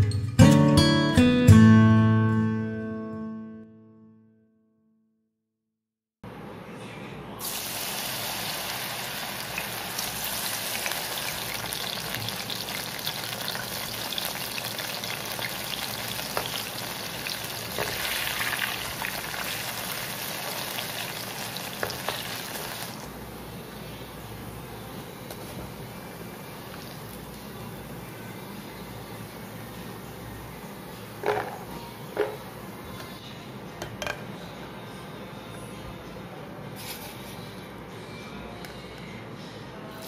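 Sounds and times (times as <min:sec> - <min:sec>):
food deep-frying in oil: 0:07.4 - 0:23.2.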